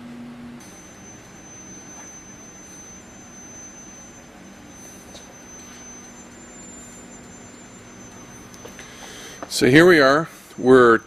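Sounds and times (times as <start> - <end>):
high-pitched electronic whine: 0.6 - 11.0.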